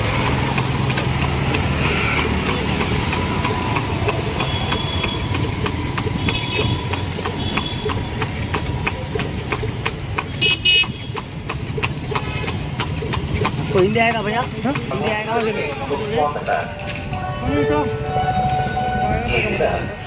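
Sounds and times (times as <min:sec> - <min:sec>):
horse hooves trotting on asphalt: 0:00.0 - 0:18.8
city traffic drone: 0:00.0 - 0:20.0
vehicle horns tooting: 0:04.2 - 0:08.5, 0:09.2 - 0:11.3, 0:16.8 - 0:20.0.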